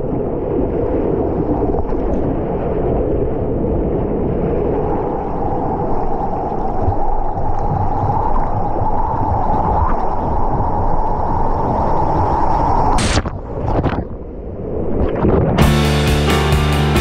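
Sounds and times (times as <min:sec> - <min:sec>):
rushing churning water: 0:00.0 - 0:15.6
water splash: 0:00.0 - 0:15.8.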